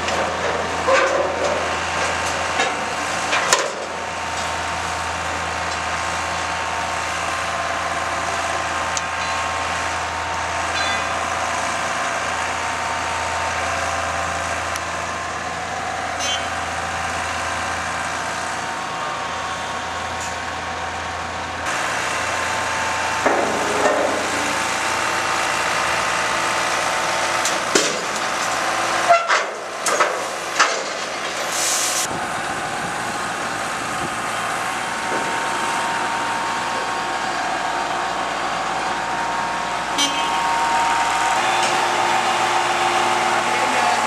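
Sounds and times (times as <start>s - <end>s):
hydraulic crane engine whine: 0.0s - 44.0s.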